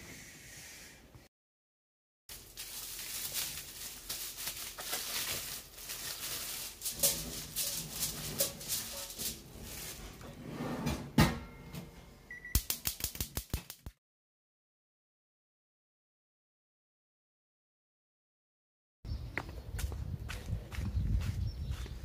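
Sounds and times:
plastic wrap crinkling: 2.3 - 10.2
drawer shutting with a knock: 10.8 - 11.9.

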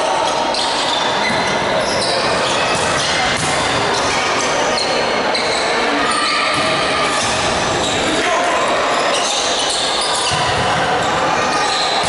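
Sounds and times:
sneakers squeaking on court: 0.5 - 4.2, 9.1 - 12.0
volleyball being struck: 2.8 - 3.9.

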